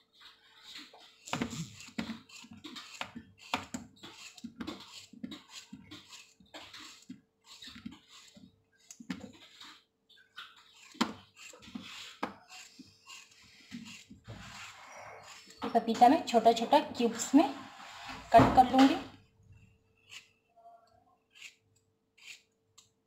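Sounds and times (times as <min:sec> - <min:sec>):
knife scraping: 0:00.1 - 0:19.0, 0:20.0 - 0:22.5
knife slicing papaya: 0:10.4 - 0:15.6, 0:22.2 - 0:22.5.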